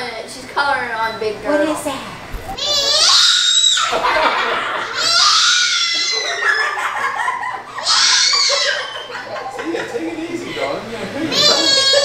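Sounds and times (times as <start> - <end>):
toddler squealing with laughter: 2.6 - 4.1, 4.8 - 6.9, 7.7 - 9.3, 11.3 - 12.0
family laughing: 2.6 - 12.0.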